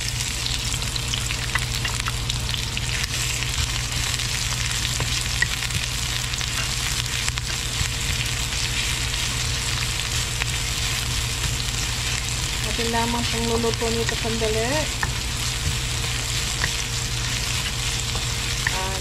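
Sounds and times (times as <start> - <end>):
onions sizzling in hot oil: 0.0 - 19.0
wooden spatula tapping and scraping: 12.8 - 19.0.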